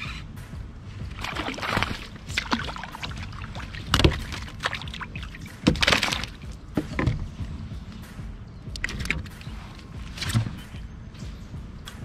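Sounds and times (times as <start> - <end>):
steady low rumble: 0.0 - 12.0
knocks in a kayak: 1.2 - 7.6.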